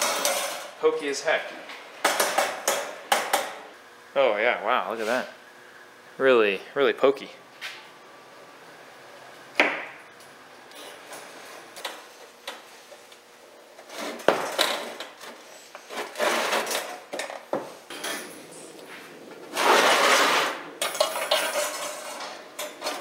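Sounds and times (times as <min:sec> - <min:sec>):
wire grid rattling on metal tray: 0:20.8 - 0:23.0.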